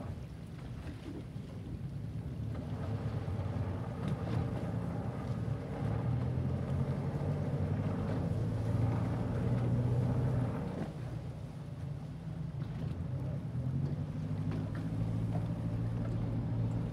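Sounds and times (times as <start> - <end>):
boat diesel engine droning: 0.0 - 16.9
light wind: 0.0 - 16.9
water noise: 0.0 - 16.9.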